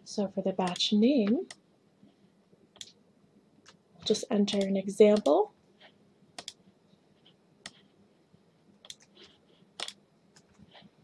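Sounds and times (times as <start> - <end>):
mouse and keyboard clicks: 4.5 - 5.4, 6.4 - 6.6, 8.8 - 9.2, 9.8 - 10.7.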